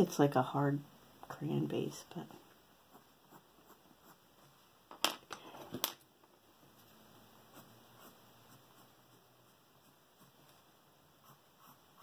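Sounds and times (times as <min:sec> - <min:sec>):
pencil scratching on paper: 0:02.9 - 0:04.6, 0:07.4 - 0:12.0.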